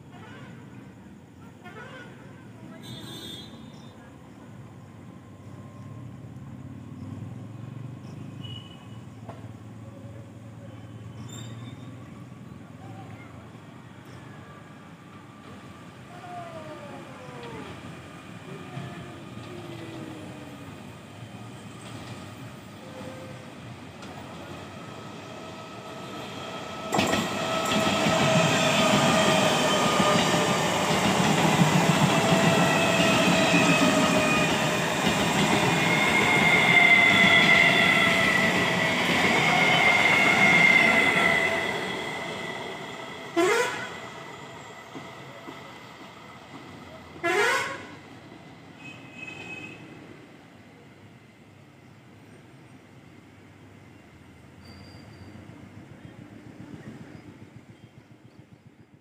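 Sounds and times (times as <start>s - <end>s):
train horn toot: 2.8s - 3.8s, 43.3s - 44.1s, 47.2s - 48.0s, 48.8s - 50.0s
train passing: 3.9s - 59.0s
wheel and rail noise: 4.9s - 59.0s
train motor whine: 16.8s - 47.6s.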